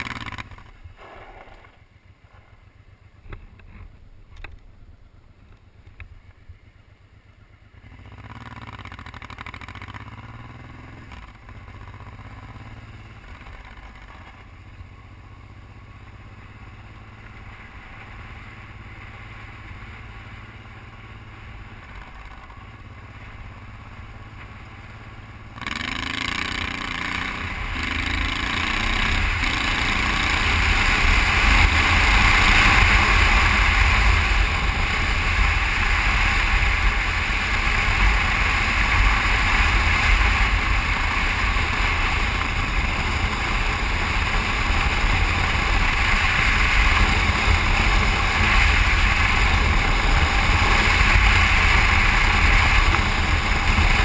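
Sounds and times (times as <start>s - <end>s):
motorcycle engine running: 0.0s - 54.0s.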